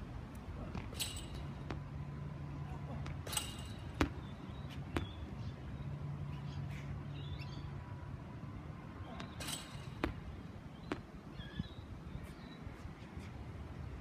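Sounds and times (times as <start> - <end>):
birds chirping: 3.4 - 8.1, 8.9 - 13.0.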